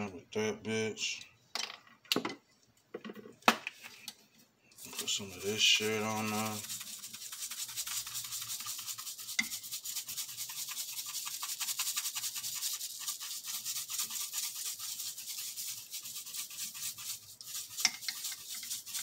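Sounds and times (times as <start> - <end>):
scratchy rubbing of seasoning on meat: 4.8 - 19.0.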